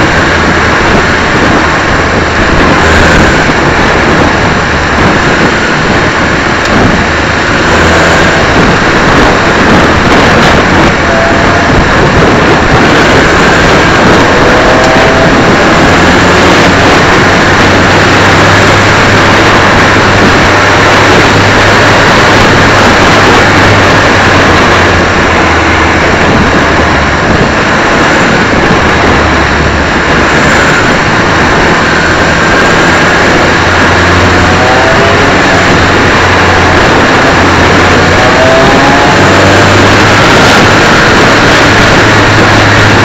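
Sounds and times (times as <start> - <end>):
race car engine running: 0.0 - 43.0
wind and road noise: 0.0 - 43.0.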